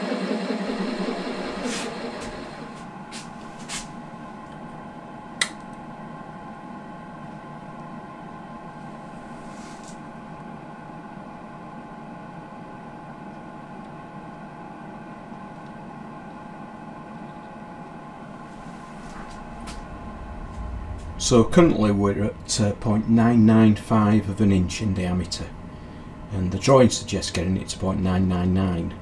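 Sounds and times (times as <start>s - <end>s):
workshop machine hum: 0.0s - 29.0s.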